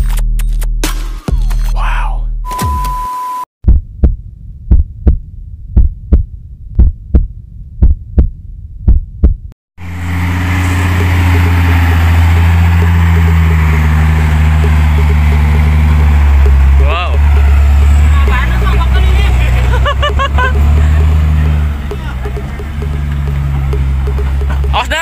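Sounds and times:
heartbeat thumps: 3.7 - 9.6, 12.8 - 25.0
diesel truck engine running: 9.8 - 25.0.

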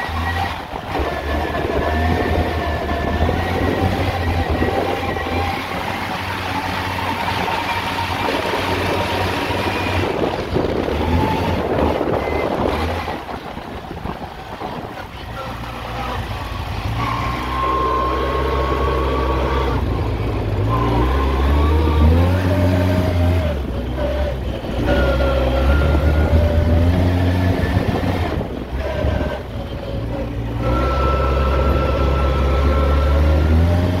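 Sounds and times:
atv engine revving: 0.0 - 34.0.

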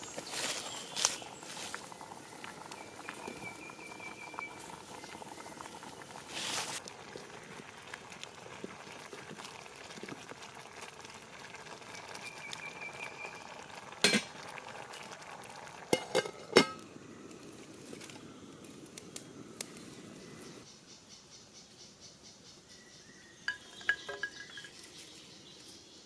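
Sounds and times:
pot boiling and bubbling: 0.0 - 20.7, 23.4 - 25.7
metal lid clinking: 14.0 - 14.3, 16.0 - 16.8, 23.5 - 24.8.

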